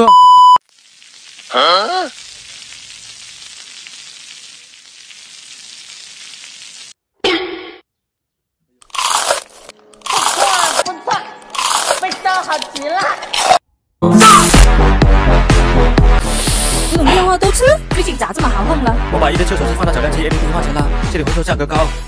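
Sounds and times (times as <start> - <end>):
steady hiss: 0.7 - 7.0
vocal sounds: 1.4 - 2.4
loud crunchy bites: 8.8 - 10.9, 11.5 - 13.6.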